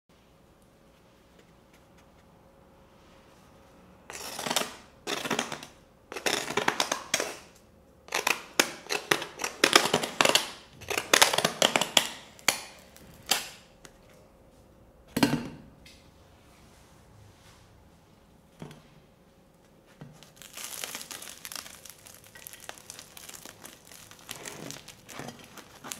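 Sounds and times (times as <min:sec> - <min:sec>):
baguette crust crackling: 0:08.1 - 0:13.6, 0:20.1 - 0:25.9.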